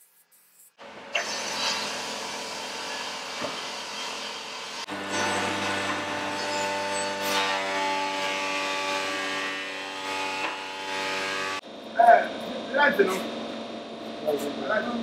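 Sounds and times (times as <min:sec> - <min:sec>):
surface planer humming: 0:00.8 - 0:11.6
board rasping through cutter: 0:01.1 - 0:11.6.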